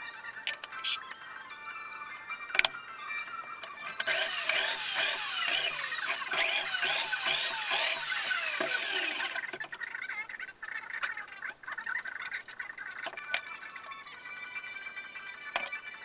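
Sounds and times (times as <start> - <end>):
background music: 0.0 - 9.5, 12.6 - 16.0
electric drill boring: 4.0 - 9.5.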